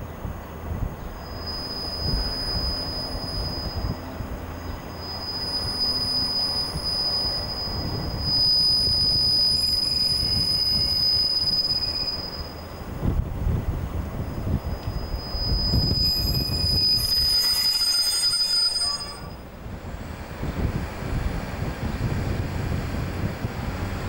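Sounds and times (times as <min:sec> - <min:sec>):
train low rumble: 0:00.0 - 0:24.0
high-pitched train wheel squeal: 0:01.1 - 0:12.9, 0:14.4 - 0:20.9.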